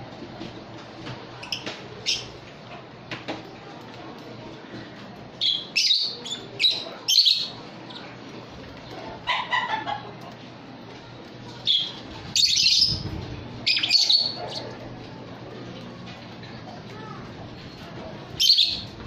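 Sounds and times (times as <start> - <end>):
lovebirds chirping: 5.4 - 8.2, 11.6 - 14.8.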